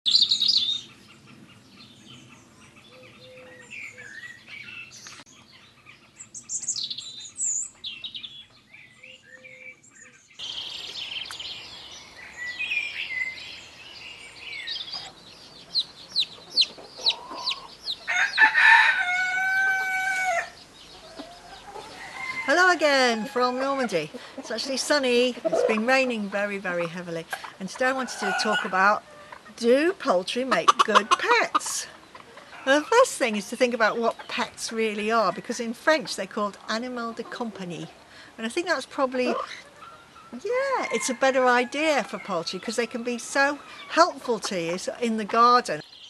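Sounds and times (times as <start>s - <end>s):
small birds chirping: 0.1s - 46.0s
chickens clucking: 14.8s - 45.8s
rooster crowing: 17.0s - 23.7s.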